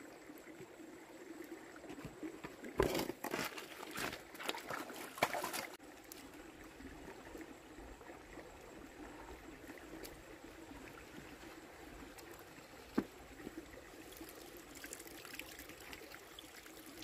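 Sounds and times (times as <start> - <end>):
faint water trickle: 0.0 - 2.6, 3.4 - 17.0.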